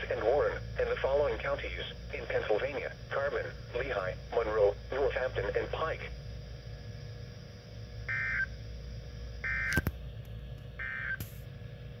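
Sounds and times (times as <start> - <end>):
low steady hum: 0.0 - 12.0
warbling data bursts from speaker: 8.0 - 8.6, 9.4 - 9.8, 10.8 - 11.2.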